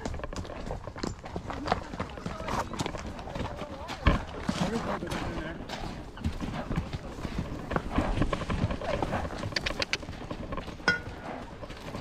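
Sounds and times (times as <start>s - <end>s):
hooves clopping on rocks: 0.0s - 12.0s.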